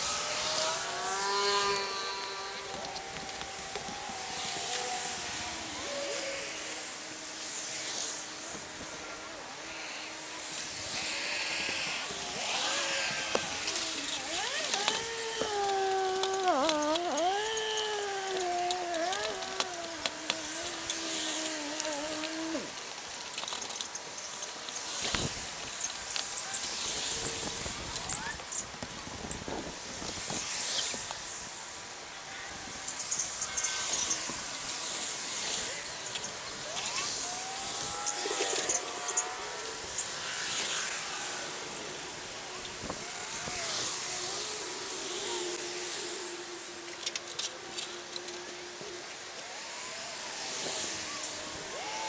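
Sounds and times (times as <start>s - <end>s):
motor humming and winding down: 0.0s - 24.2s, 32.4s - 52.0s
sharp clicks: 13.3s - 25.3s.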